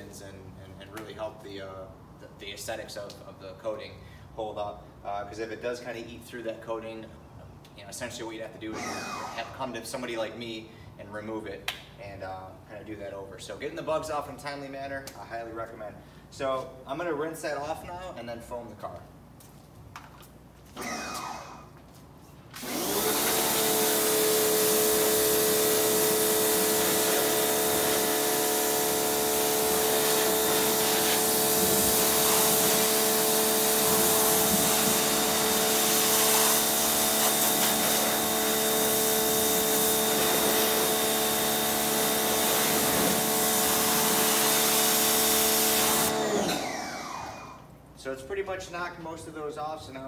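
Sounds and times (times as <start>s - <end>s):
pressure washer running: 8.8s - 9.6s, 20.8s - 21.7s, 22.6s - 47.7s
water jet hissing: 22.7s - 46.1s.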